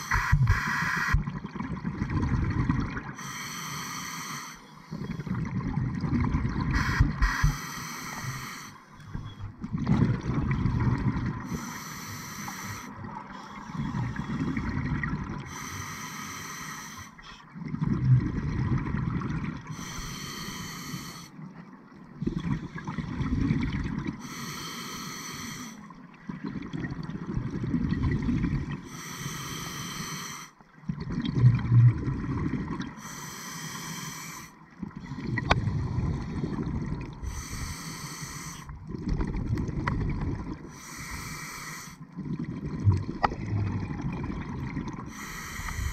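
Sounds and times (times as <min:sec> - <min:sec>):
regulator inhale hiss: 0:00.0 - 0:01.2, 0:03.2 - 0:05.2, 0:06.7 - 0:09.5, 0:11.5 - 0:14.6, 0:15.5 - 0:17.4, 0:19.7 - 0:21.4, 0:24.2 - 0:25.9, 0:28.9 - 0:30.6, 0:33.0 - 0:34.6, 0:37.2 - 0:38.7, 0:40.7 - 0:42.0, 0:45.1 - 0:45.9
exhaled bubbles gurgling: 0:00.0 - 0:03.3, 0:04.9 - 0:11.8, 0:12.5 - 0:15.6, 0:17.5 - 0:20.6, 0:21.7 - 0:24.4, 0:26.0 - 0:28.9, 0:30.7 - 0:33.8, 0:34.6 - 0:45.9.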